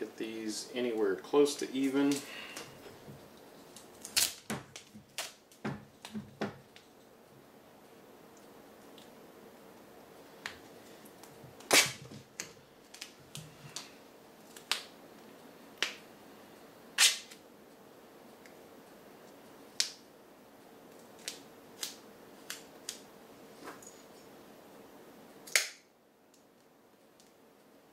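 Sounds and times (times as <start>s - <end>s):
duct tape crackling and snapping: 3.3s - 7.0s, 10.4s - 15.0s, 17.0s - 17.4s, 19.7s - 20.0s, 20.9s - 23.1s, 25.4s - 27.4s.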